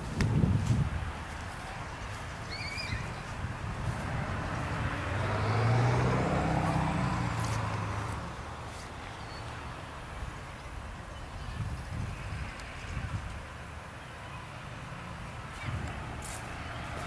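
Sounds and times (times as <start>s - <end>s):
vehicle engine passing by: 2.5s - 9.7s.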